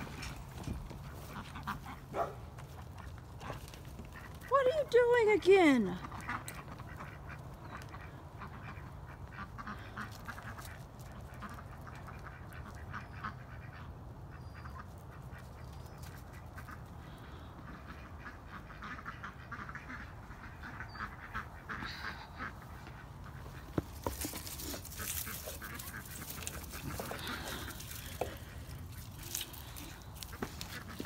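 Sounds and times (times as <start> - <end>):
poultry calling: 0.0 - 4.5, 6.0 - 31.0.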